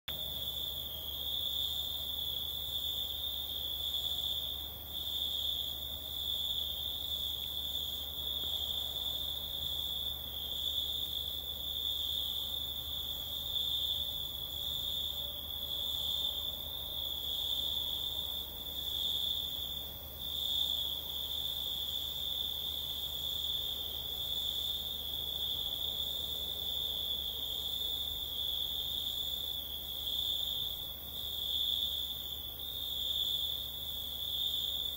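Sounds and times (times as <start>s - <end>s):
crickets chirring: 0.1s - 34.9s.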